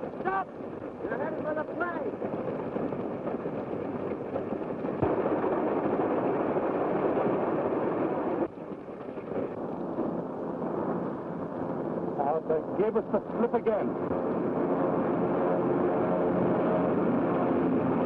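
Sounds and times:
propeller airplane engines running: 0:00.0 - 0:18.0.

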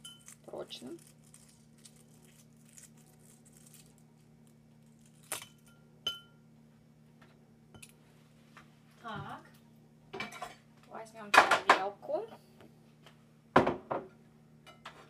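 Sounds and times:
egg shell crackling: 0:00.0 - 0:05.7
faint steady hum: 0:00.0 - 0:15.0.

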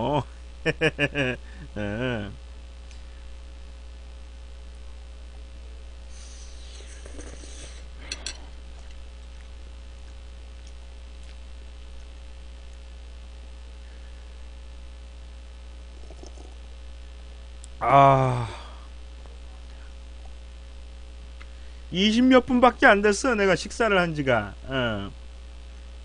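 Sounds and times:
steady electrical hum: 0:00.0 - 0:26.0
noodle slurp: 0:06.4 - 0:07.9, 0:15.9 - 0:16.6.

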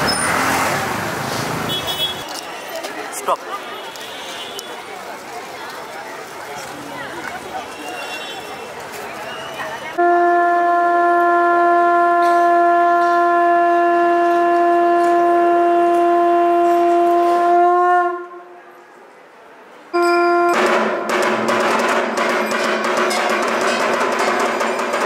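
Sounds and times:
conch shell blast: 0:10.0 - 0:18.5, 0:20.0 - 0:21.1
drumming: 0:20.4 - 0:25.0.

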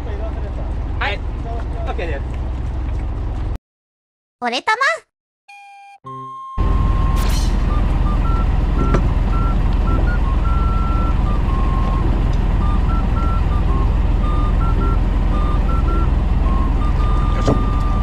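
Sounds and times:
boat engine rumbling: 0:00.0 - 0:03.6, 0:06.6 - 0:18.0
wind: 0:00.0 - 0:03.6, 0:06.6 - 0:18.0
short electronic beeps: 0:05.5 - 0:18.0.

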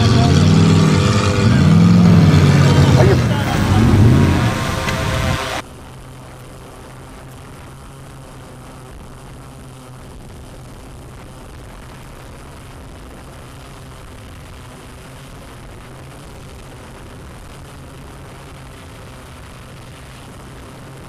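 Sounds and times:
drone propellers humming: 0:00.0 - 0:12.6.

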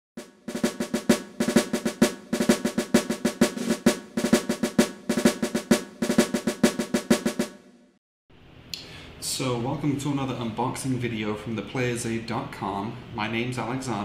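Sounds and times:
snare drum cadence with rolls: 0:00.2 - 0:07.6.

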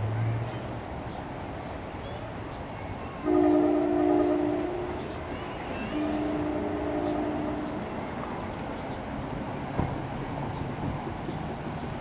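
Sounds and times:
train horn blast: 0:03.2 - 0:05.1, 0:05.9 - 0:07.9.

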